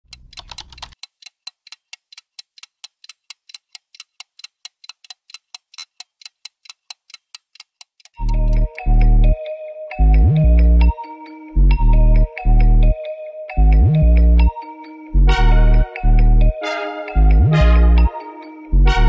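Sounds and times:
clock-like ticking: 0.0 - 9.4
loud bass-heavy music: 10.0 - 10.9, 11.6 - 13.0, 13.6 - 14.5, 15.2 - 18.1, 18.7 - 19.0.

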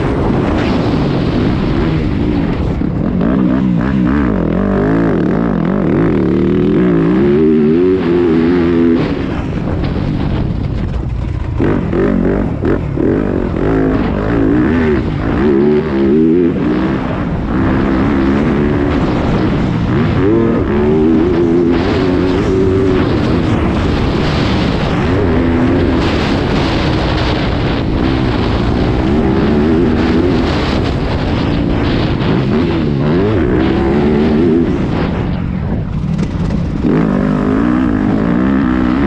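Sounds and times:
motocross bike engine revving: 0.0 - 39.0.

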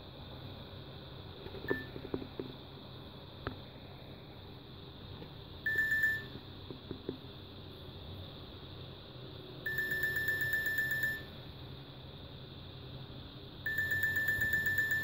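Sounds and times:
mobile phone alarm beeps: 5.7 - 6.3, 9.7 - 11.3, 13.7 - 15.0.

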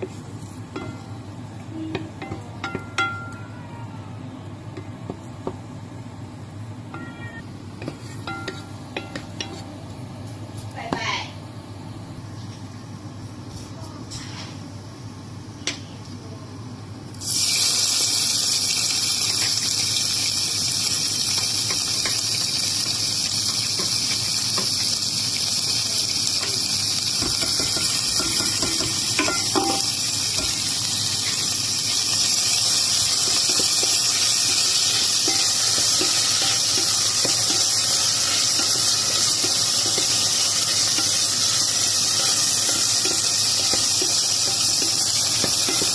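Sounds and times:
meat sizzling in hot oil: 17.2 - 45.9.

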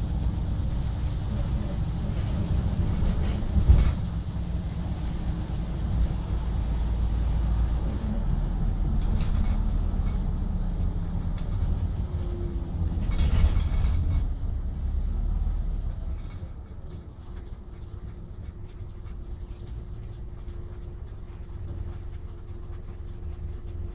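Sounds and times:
bus engine and road rumble: 0.0 - 23.9
small rattles: 2.1 - 5.1, 8.7 - 14.4, 15.7 - 23.9.

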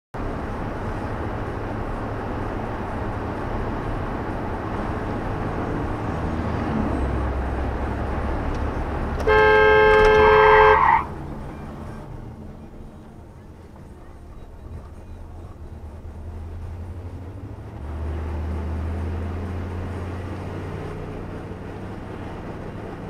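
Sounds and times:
car road and engine noise: 0.1 - 23.0
two-tone car horn: 9.2 - 11.2.

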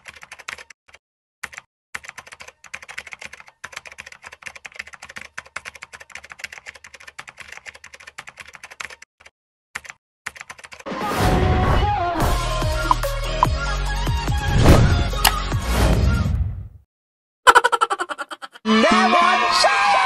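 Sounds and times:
rapid keyboard typing: 0.0 - 10.8.

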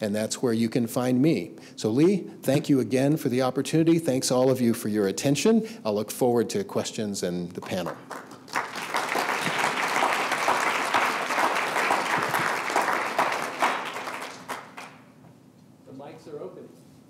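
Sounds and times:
audience applauding: 7.6 - 15.1.

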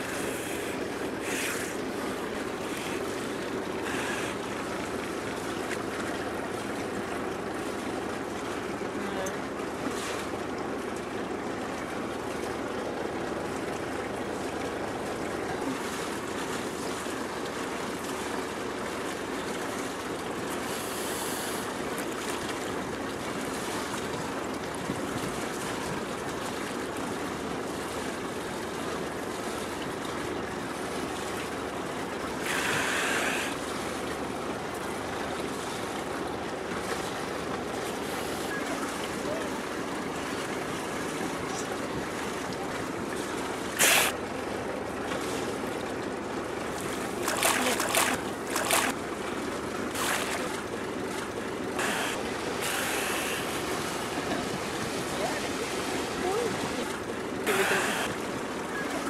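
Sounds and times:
water lapping and sloshing: 0.0 - 59.0
hissing burst: 43.8 - 44.1, 51.8 - 53.6, 57.5 - 58.2.

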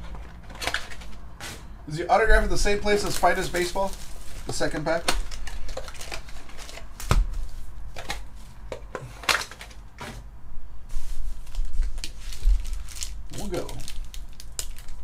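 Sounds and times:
plastic wrappers crinkling: 0.2 - 1.2, 2.9 - 7.1, 11.3 - 15.0.

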